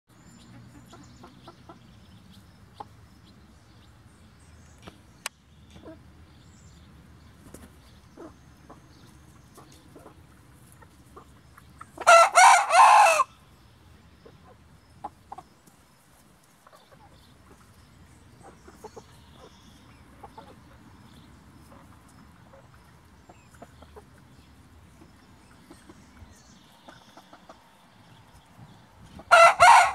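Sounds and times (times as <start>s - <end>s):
rooster crowing: 12.0s - 13.3s, 29.3s - 29.9s.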